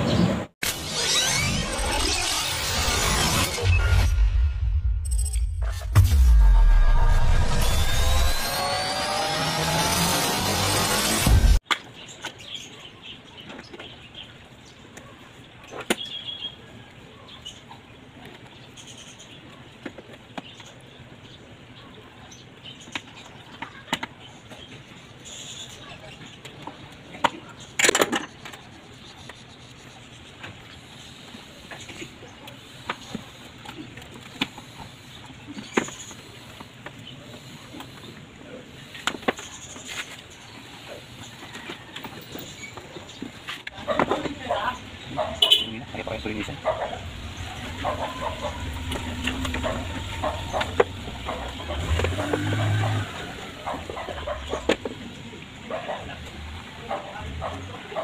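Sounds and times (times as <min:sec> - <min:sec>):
plastic parts clicking and knocking: 0:26.4 - 0:28.7.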